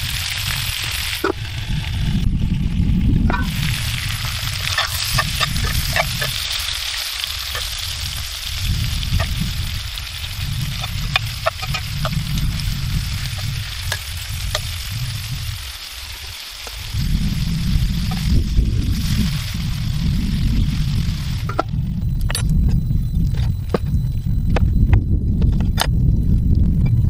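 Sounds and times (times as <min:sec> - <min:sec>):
meat sizzling in a skillet: 0:00.0 - 0:21.7
low rumble: 0:00.0 - 0:27.0.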